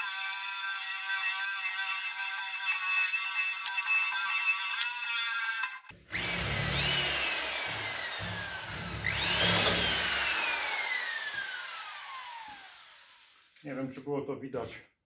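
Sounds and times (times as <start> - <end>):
electric drill drilling into steel: 0.0 - 13.6.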